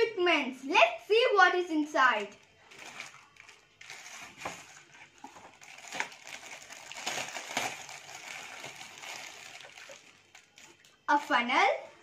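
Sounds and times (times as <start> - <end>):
plastic packaging crinkling: 2.4 - 11.0.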